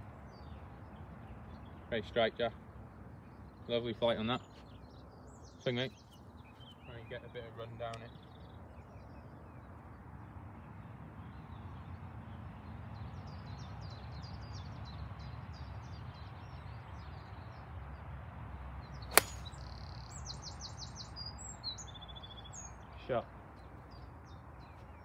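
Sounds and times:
low steady background noise: 0.0s - 25.0s
golf club striking ball: 19.1s - 19.6s.

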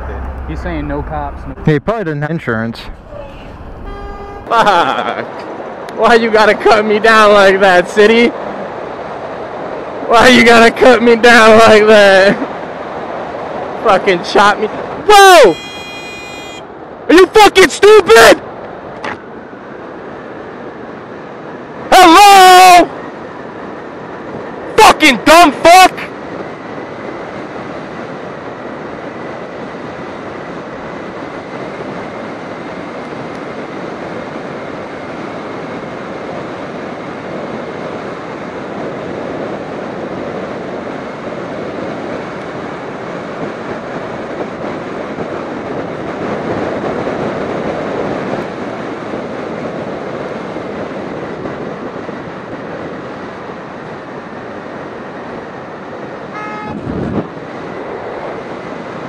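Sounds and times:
wind and road noise: 0.0s - 59.0s
horn toot: 2.9s - 4.5s, 15.3s - 16.7s, 56.3s - 57.0s.

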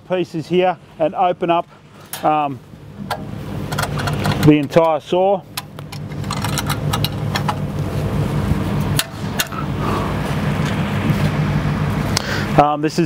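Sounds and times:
engine humming: 0.0s - 13.0s
metal latch clicks: 3.0s - 7.7s, 9.0s - 9.6s.

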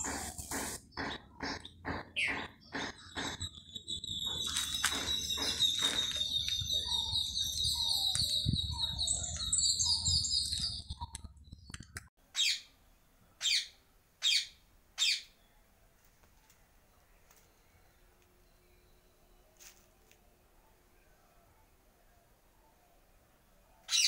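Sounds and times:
rapid high bird chirps: 0.0s - 12.8s.

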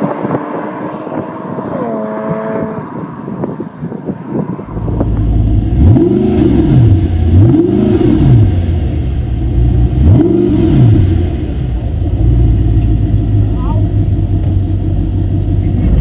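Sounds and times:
car engine revving: 0.0s - 16.0s
car engine idling: 4.5s - 16.0s.

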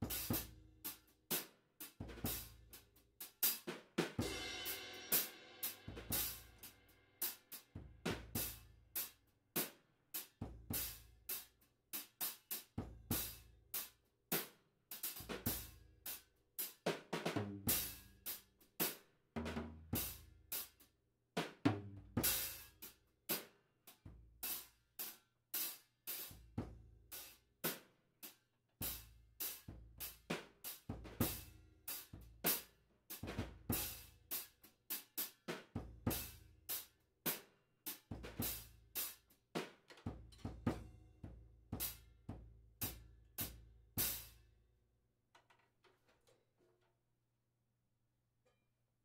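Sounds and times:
drum kit beat: 0.0s - 20.8s, 21.4s - 23.5s, 28.8s - 44.4s.

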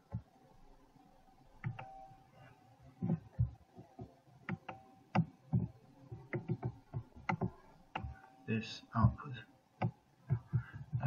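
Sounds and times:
computer mouse clicks: 1.6s - 2.0s, 3.0s - 8.2s.

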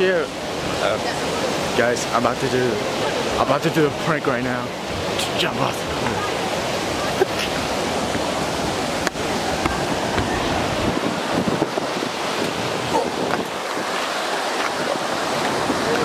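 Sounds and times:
water rushing: 0.0s - 16.0s
wind buffeting microphone: 5.8s - 16.0s.

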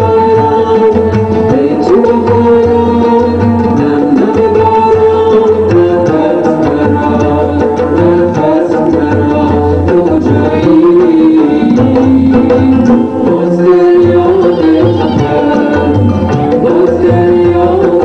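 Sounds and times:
hand drum beating: 0.0s - 18.0s
sliding melody line: 0.0s - 18.0s.

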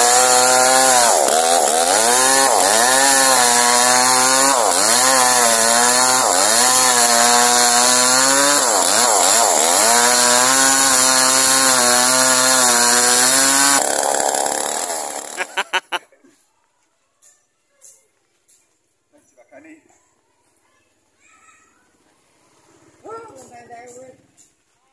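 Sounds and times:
chainsaw cutting wood: 0.0s - 16.0s.

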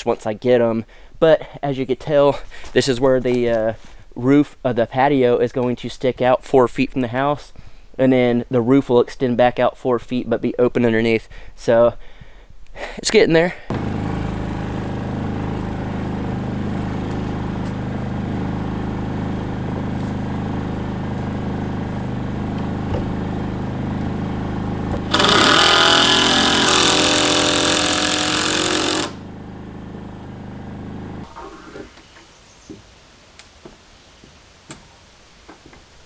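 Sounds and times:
power tool running: 13.7s - 31.3s.

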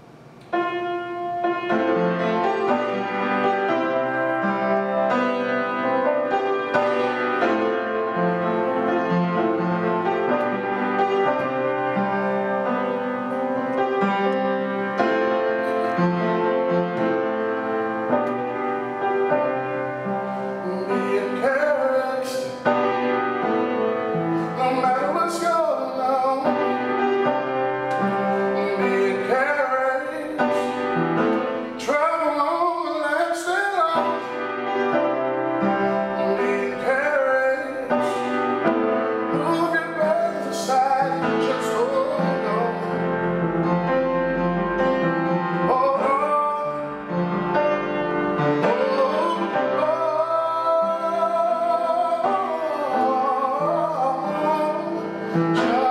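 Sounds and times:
piano chords: 0.0s - 55.9s
man singing: 20.0s - 23.5s, 24.1s - 44.5s, 45.1s - 47.5s, 48.3s - 55.9s.

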